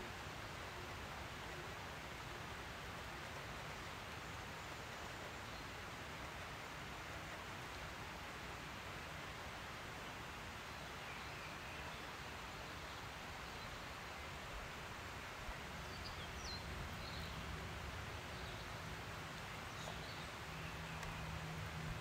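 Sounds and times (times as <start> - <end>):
songbird chirps: 10.6 - 22.0.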